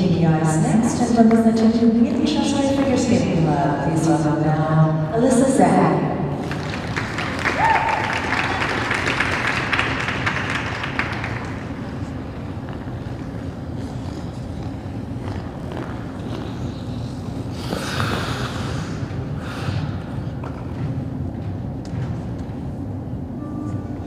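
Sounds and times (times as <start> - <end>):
low hum of ice rink: 0.0 - 24.0
applause: 6.4 - 11.9
skate blades scraping ice: 11.1 - 18.6.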